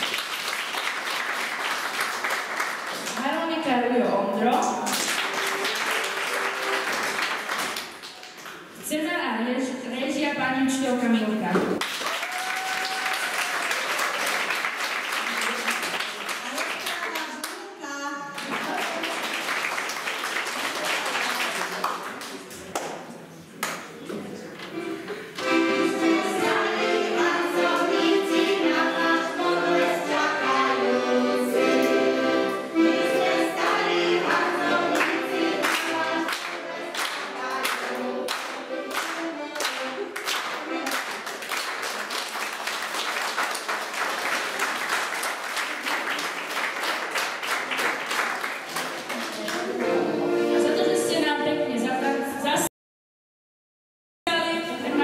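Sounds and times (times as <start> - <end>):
hand clapping: 4.5 - 8.6, 18.4 - 23.0, 23.6 - 23.9, 35.0 - 49.9
accordion: 5.2 - 7.8, 24.7 - 41.4, 49.5 - 52.7
children singing: 25.4 - 39.5.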